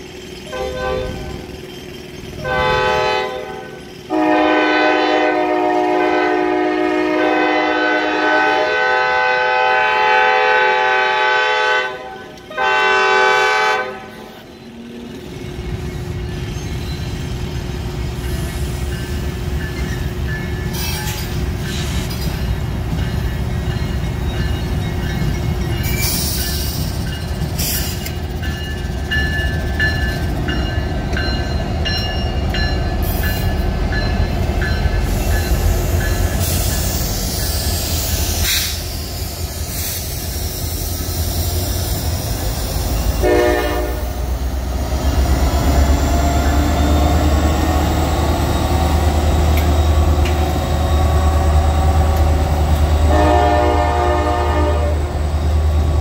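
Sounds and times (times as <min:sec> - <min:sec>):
freight train rumbling by: 0:00.0 - 0:56.0
locomotive horn blast: 0:00.5 - 0:01.4, 0:02.4 - 0:14.5, 0:43.2 - 0:44.3, 0:52.9 - 0:55.3
wheels squealing and clicking: 0:14.3 - 0:31.7.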